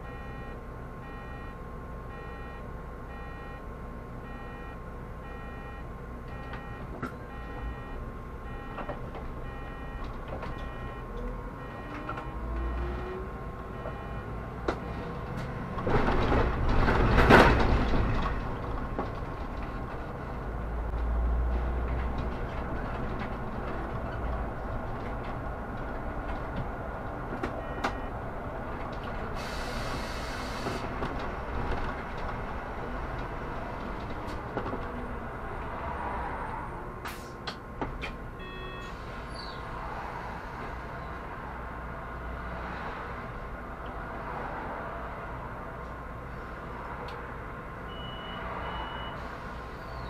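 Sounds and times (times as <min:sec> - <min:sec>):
bus engine and road rumble: 0:00.0 - 0:50.0
air hiss: 0:29.4 - 0:30.8.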